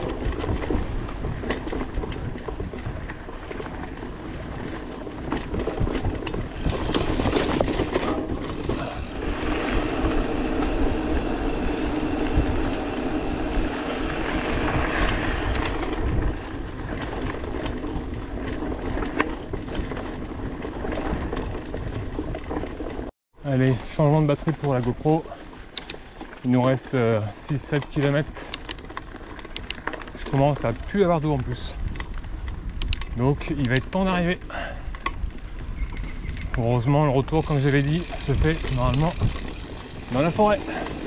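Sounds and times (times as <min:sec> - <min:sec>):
wind buffeting microphone: 0:00.0 - 0:23.0, 0:30.7 - 0:41.0
tyres rolling over gravel: 0:00.0 - 0:35.7, 0:36.5 - 0:41.0
bike rattles and clicks: 0:00.0 - 0:41.0
tyre hum: 0:06.1 - 0:15.5.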